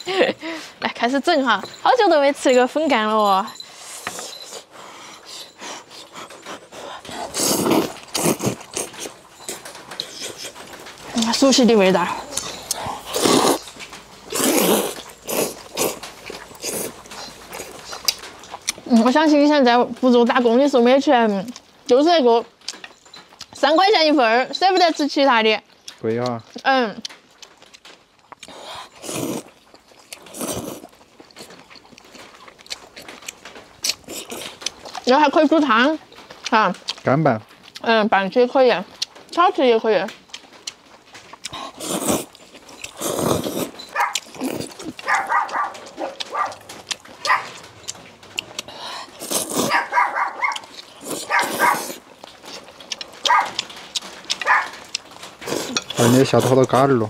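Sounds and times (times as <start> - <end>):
faint chewing clicks: 1.8 - 23.8, 25.7 - 57.0
person slurping noodles: 3.8 - 9.1, 12.4 - 13.6, 14.3 - 18.0, 28.5 - 29.5, 30.3 - 30.9, 41.5 - 45.0, 48.7 - 49.8, 50.8 - 52.0, 55.4 - 56.6.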